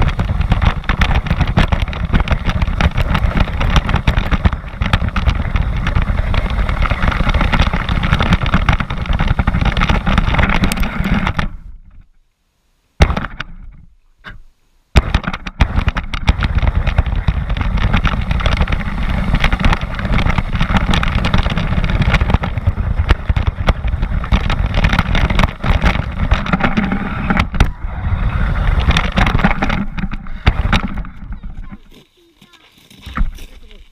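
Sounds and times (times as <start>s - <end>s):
rc car rattling over gravel: 0.0s - 12.1s, 15.0s - 33.9s
sharp knocks: 13.0s - 27.8s, 28.8s - 31.8s.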